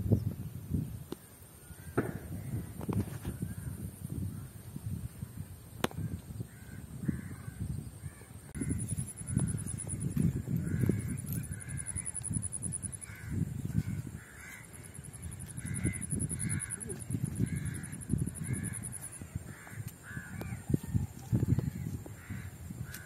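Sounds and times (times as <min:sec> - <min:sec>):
crows cawing: 0:06.5 - 0:20.8, 0:21.4 - 0:23.0.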